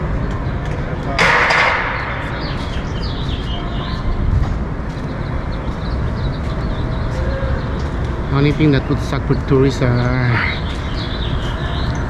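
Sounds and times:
street traffic rumbling: 0.0s - 12.0s.

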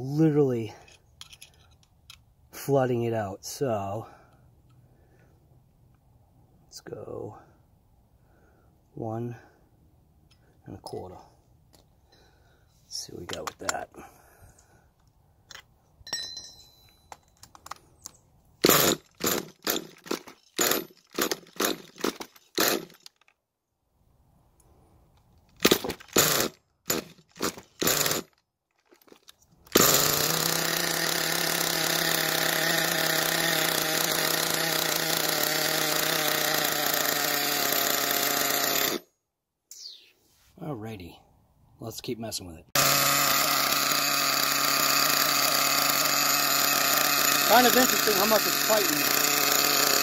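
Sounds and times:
small engine cranking: 18.6s - 23.3s, 25.5s - 39.0s, 42.8s - 50.0s
small two-stroke engine running: 29.8s - 39.0s, 42.8s - 50.0s.

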